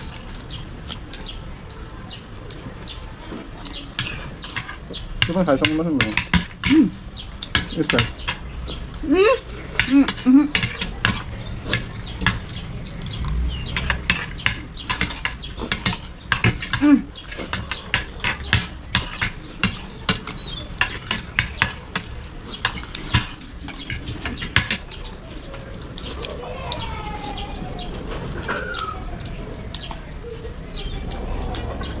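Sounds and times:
cutlery clinking on plates: 3.3s - 8.4s, 9.7s - 12.6s, 13.7s - 25.1s.

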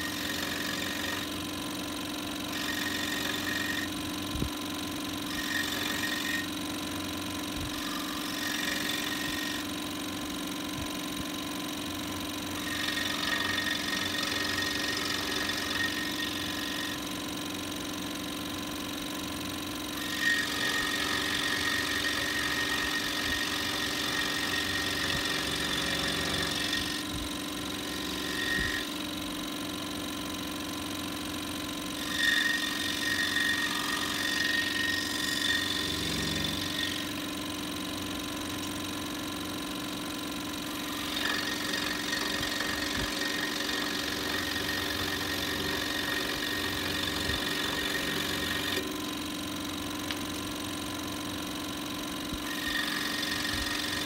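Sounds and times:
saw blade cutting wood: 0.0s - 18.0s, 19.3s - 39.2s, 40.5s - 51.3s, 52.3s - 54.0s
scroll saw motor hum: 0.0s - 54.0s.

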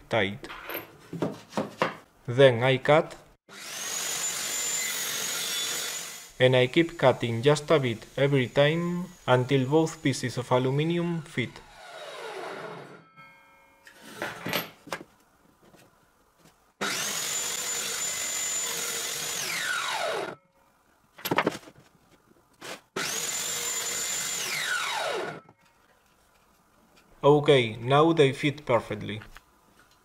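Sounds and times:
table saw cutting and spinning down: 3.5s - 6.4s, 7.6s - 13.1s, 16.8s - 20.4s, 23.0s - 25.5s.

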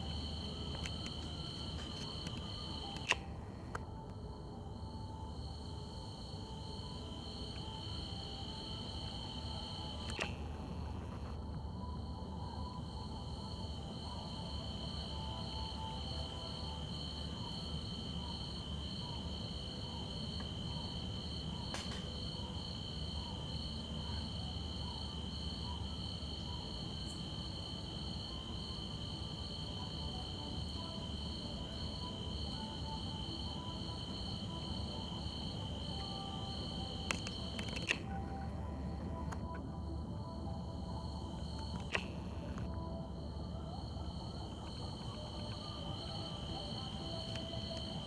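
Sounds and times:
crickets chirping: 0.0s - 48.0s.

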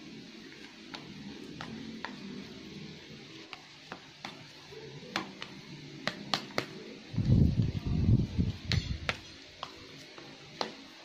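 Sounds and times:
low steady hum: 0.0s - 11.0s.

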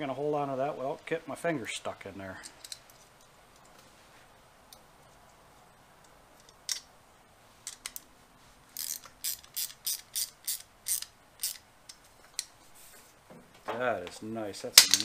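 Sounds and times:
metal tool ratchet clicks: 8.8s - 12.5s.

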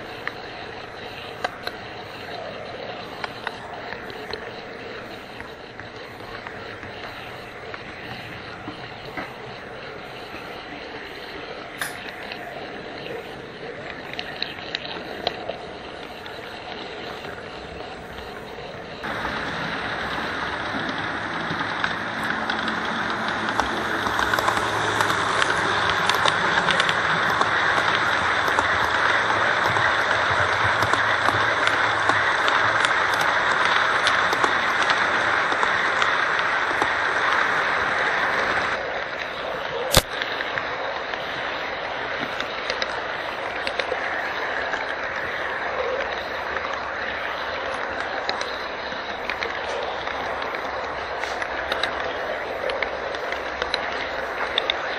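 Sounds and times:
locomotive motor hum: 0.0s - 54.9s
model train wheels rolling: 0.0s - 54.9s
light rail joint clicks: 11.2s - 12.5s, 20.9s - 37.4s
sharp click: 39.9s - 40.2s.

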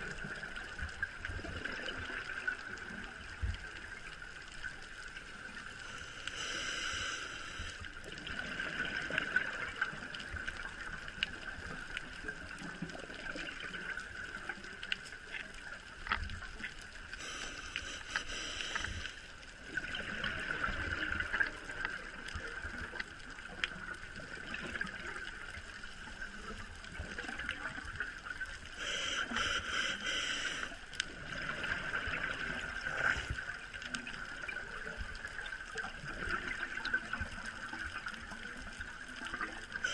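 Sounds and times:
regulator hiss: 5.7s - 8.0s, 17.1s - 19.4s, 28.7s - 30.9s
gurgle of exhaled bubbles: 8.0s - 14.7s, 19.6s - 25.6s, 31.1s - 39.9s.

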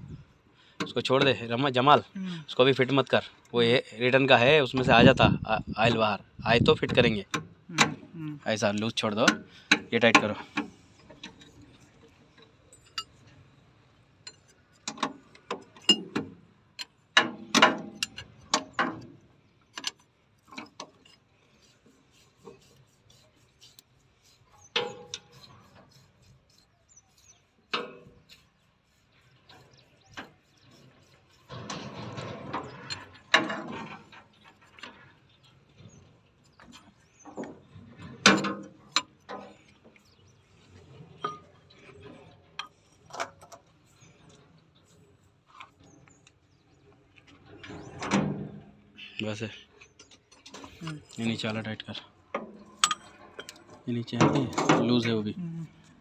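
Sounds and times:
spanner and metal fittings clinking: 8.9s - 13.4s, 14.2s - 16.2s, 16.8s - 19.0s, 52.7s - 54.8s.

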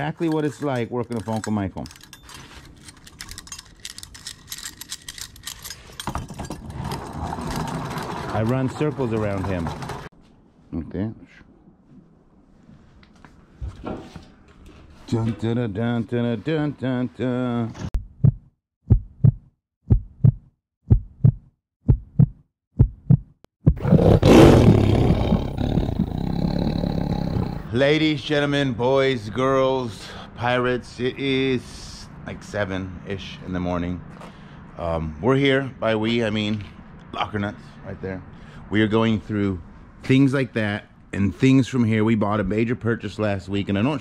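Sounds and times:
small metal objects jingling: 0.0s - 6.6s
heartbeat thumps: 18.0s - 23.9s
loud roar: 23.8s - 27.7s.

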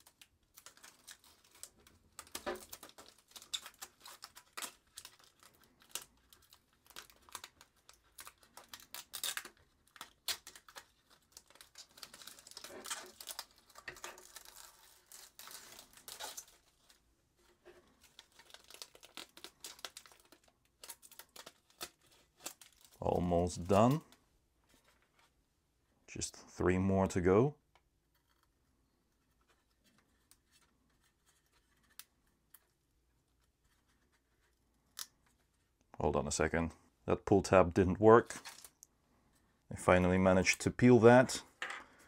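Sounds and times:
plastic film crinkling: 0.0s - 25.3s, 38.2s - 38.9s.

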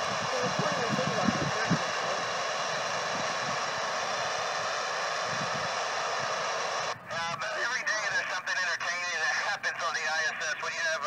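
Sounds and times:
radio static hiss: 0.0s - 11.0s
voice through radio: 0.2s - 2.3s, 7.1s - 11.0s.

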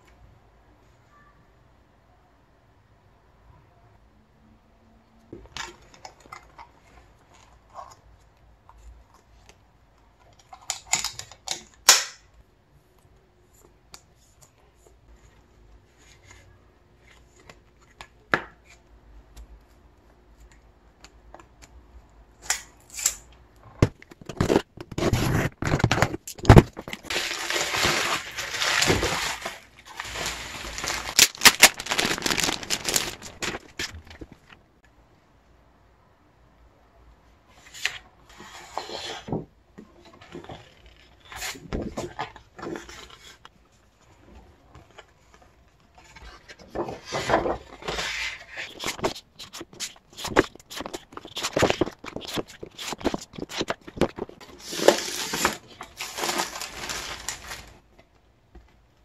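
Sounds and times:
plastic wrap crinkling: 25.4s - 34.6s, 48.6s - 57.9s.

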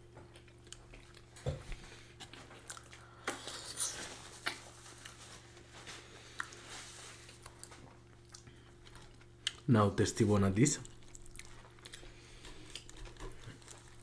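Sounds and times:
soft chewing: 0.0s - 9.7s, 10.7s - 14.0s.

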